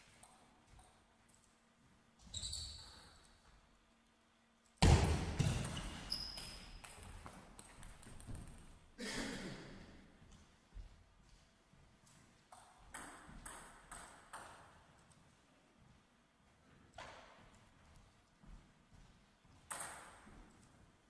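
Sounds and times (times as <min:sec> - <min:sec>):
shoe squeaks: 0:02.2 - 0:03.2, 0:05.8 - 0:06.8.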